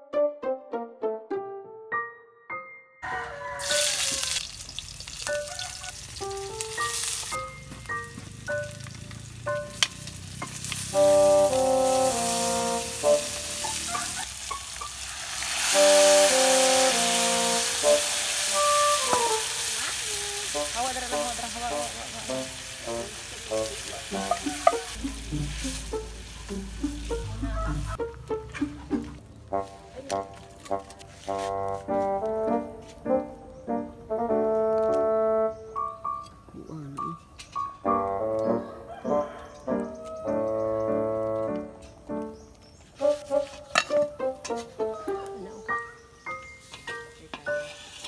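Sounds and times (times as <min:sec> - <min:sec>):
food sizzling in hot oil: 0:03.3 - 0:27.6
broth pouring into hot wok: 0:03.6 - 0:07.5, 0:09.9 - 0:27.2
wooden spatula stirring in wok: 0:47.4 - 0:48.0.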